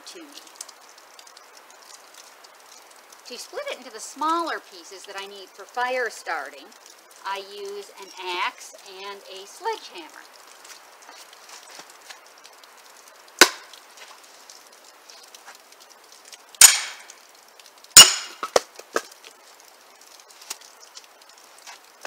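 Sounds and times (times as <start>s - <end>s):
axe chopping into log: 13.4s - 13.7s, 16.6s - 17.0s, 18.0s - 18.6s.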